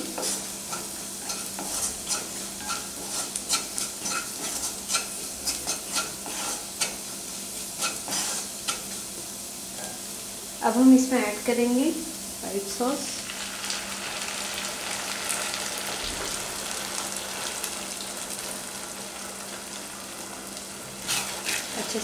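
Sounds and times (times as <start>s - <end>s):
spatula scraping and tapping pan: 0.0s - 7.0s, 7.8s - 9.0s
vegetables sizzling in oil: 0.0s - 22.0s.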